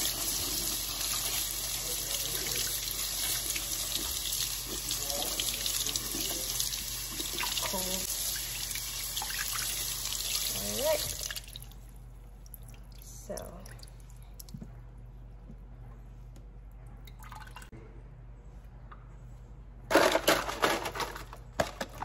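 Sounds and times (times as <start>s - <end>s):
faucet water splashing into colander: 0.0s - 11.8s.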